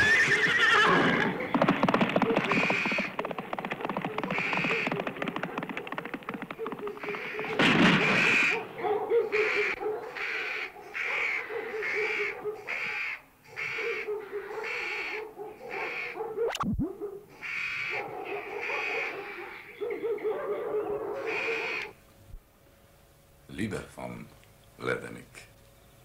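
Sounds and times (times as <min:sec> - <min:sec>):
loud burst: 0:07.5 - 0:08.6
owl-like call: 0:09.2 - 0:16.7, 0:17.3 - 0:20.2, 0:21.0 - 0:22.0.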